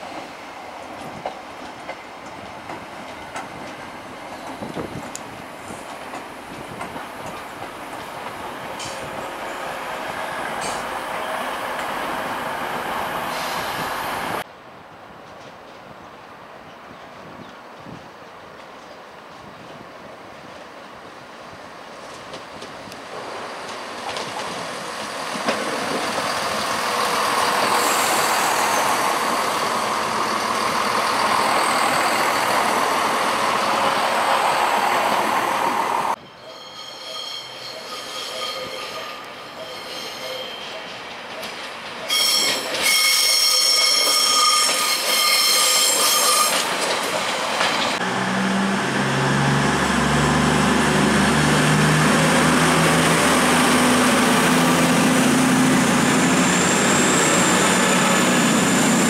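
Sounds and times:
train wheel and engine rush: 0.0s - 14.5s, 17.0s - 59.0s
high-pitched wheel squeal: 26.2s - 33.3s, 36.4s - 40.8s, 42.1s - 46.7s
diesel engines droning: 48.0s - 59.0s.

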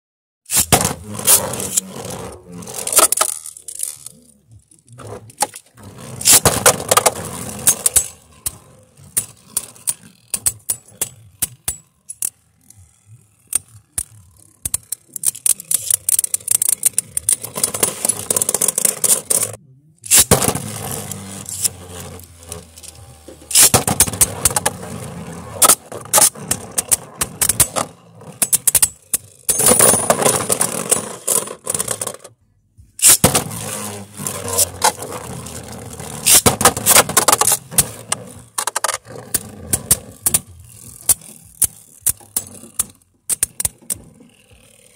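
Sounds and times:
spinning tops whirring and scraping: 0.5s - 32.4s, 33.0s - 44.9s
spinning tops clashing with clicks: 13.4s - 20.6s, 21.4s - 24.7s, 33.0s - 33.4s.

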